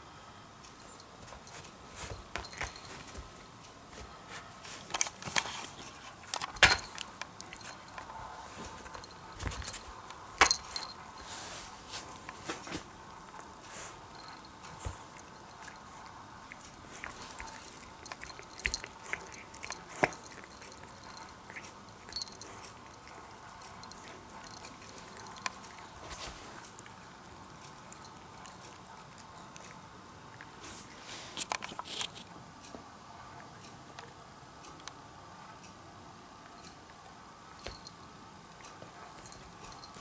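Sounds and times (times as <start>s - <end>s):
cat crunching a moth: 4.8s - 9.3s, 12.1s - 32.4s.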